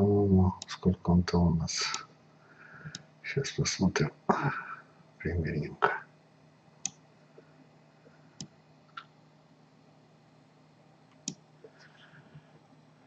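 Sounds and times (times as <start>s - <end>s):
faint steady hum: 0.0s - 13.0s
computer mouse clicks: 11.1s - 11.8s.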